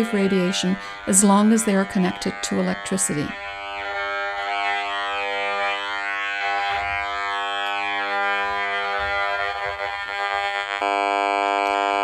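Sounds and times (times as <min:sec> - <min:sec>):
electronic buzz from speaker: 0:00.0 - 0:12.0.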